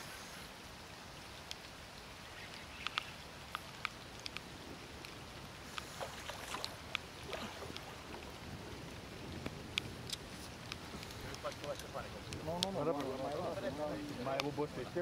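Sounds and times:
low wind rumble: 0.0 - 15.0
raindrops ticking on camera: 0.5 - 15.0
fish thrashing in water: 5.8 - 8.1.

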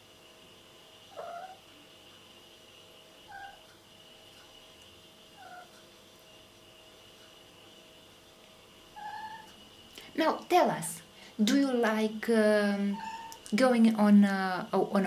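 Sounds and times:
cat giving soft calls: 1.1 - 1.6, 3.3 - 3.6, 5.4 - 5.8, 9.0 - 9.6.

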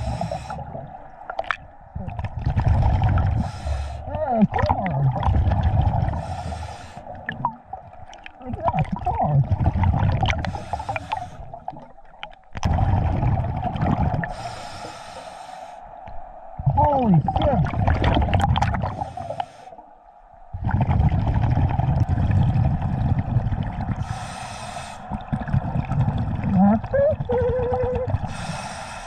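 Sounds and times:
regulator hissing inhalations: 0.0 - 0.6, 3.4 - 4.0, 6.2 - 7.2, 10.4 - 11.5, 14.3 - 15.9, 18.8 - 19.8, 24.0 - 25.1, 28.3 - 29.0
bubbling exhalations: 0.0 - 15.0, 16.0 - 19.4, 20.5 - 29.0.

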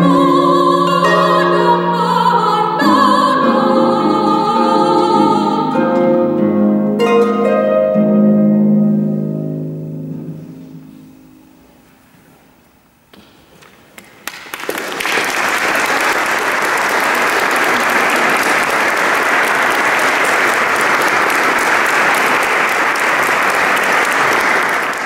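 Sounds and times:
audience applauding: 13.8 - 25.0.

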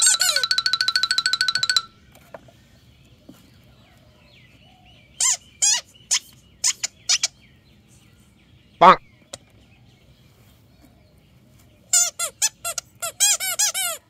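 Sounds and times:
rubber duck toy squeaks: 0.0 - 0.6, 5.2 - 7.3, 11.9 - 14.0.

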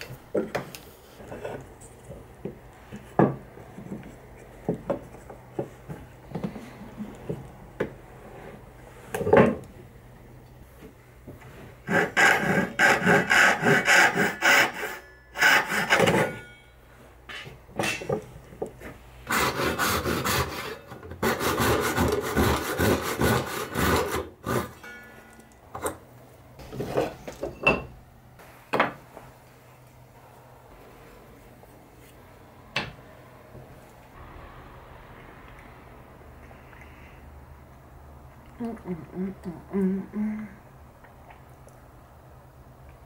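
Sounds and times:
hand saw cutting wood: 11.8 - 16.4, 19.3 - 24.9.

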